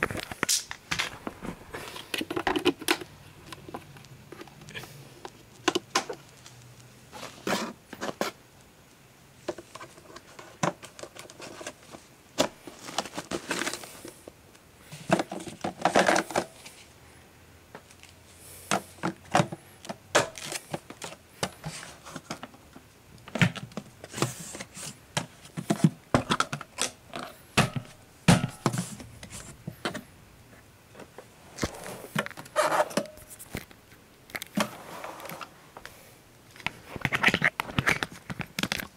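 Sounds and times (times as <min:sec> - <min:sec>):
plastic parts clicking: 0:01.9 - 0:06.6, 0:36.6 - 0:38.9.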